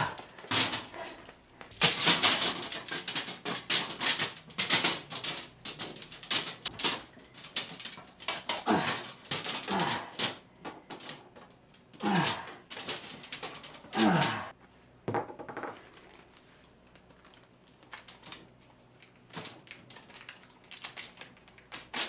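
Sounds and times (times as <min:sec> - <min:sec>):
copper tubing clattering on wooden floor: 0:00.0 - 0:14.5, 0:15.1 - 0:15.8.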